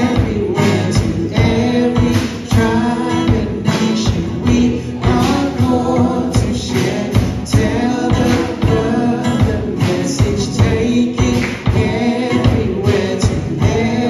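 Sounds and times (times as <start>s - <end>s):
drums and cymbals: 0.0s - 14.0s
man singing into microphone: 0.0s - 14.0s
strummed acoustic guitars: 0.0s - 14.0s.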